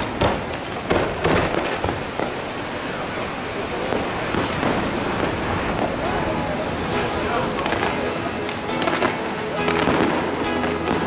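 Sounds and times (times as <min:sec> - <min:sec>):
fireworks bursting bangs: 0:00.0 - 0:11.0
fireworks crackling: 0:00.0 - 0:11.0.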